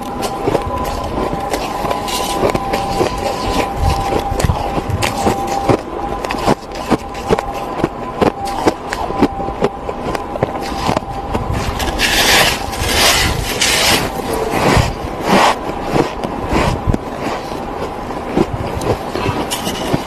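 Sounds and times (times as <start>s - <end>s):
chewing packed snow crunches: 0.0s - 20.0s.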